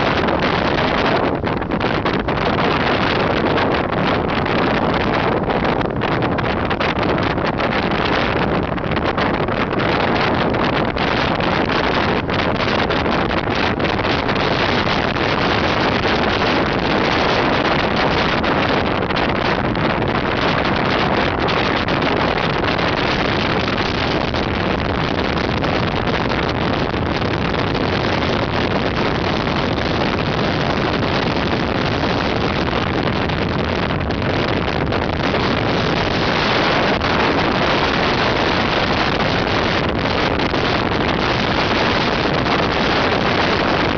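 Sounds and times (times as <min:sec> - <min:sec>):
road noise: 0:00.0 - 0:43.9
wind noise on microphone: 0:00.0 - 0:43.9.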